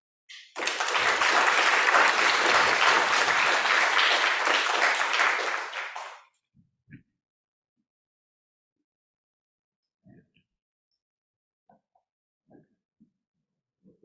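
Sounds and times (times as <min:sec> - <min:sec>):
audience applauding: 0:00.3 - 0:06.2.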